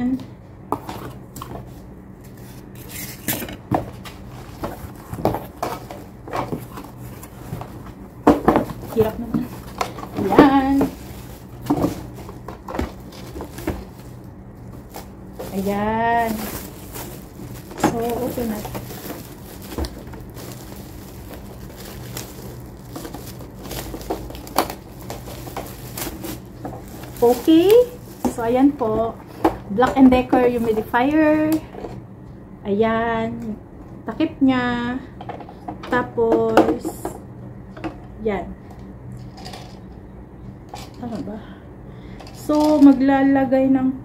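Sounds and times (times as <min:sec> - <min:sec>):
cardboard flaps rustling: 0:03.7 - 0:29.6
cardboard scuffs and knocks: 0:03.7 - 0:29.6
plastic bag crinkling: 0:04.2 - 0:29.1, 0:30.4 - 0:30.9.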